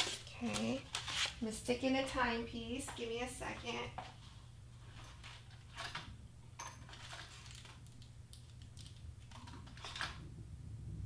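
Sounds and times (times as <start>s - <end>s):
low steady hum: 0.0s - 11.0s
small plastic parts clicking: 7.2s - 10.1s.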